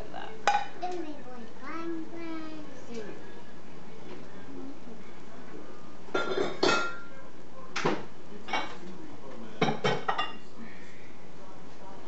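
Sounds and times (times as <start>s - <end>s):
dishes and utensils clinking: 6.1s - 7.1s, 7.8s - 8.8s, 9.6s - 10.5s.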